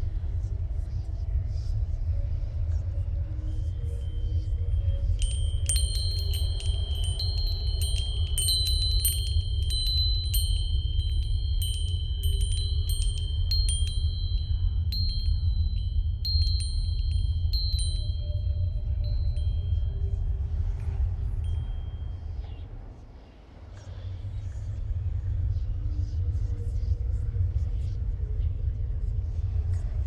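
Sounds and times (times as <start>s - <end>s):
steady deep rumble: 0.0s - 30.0s
chimes tinkling: 3.8s - 22.6s.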